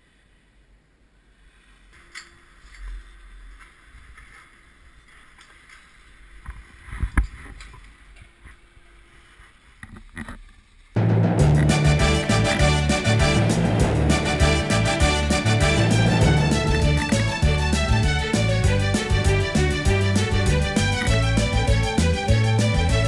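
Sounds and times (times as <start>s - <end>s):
heavy thumps: 11.0s - 22.9s
low rumbling: 11.0s - 23.0s.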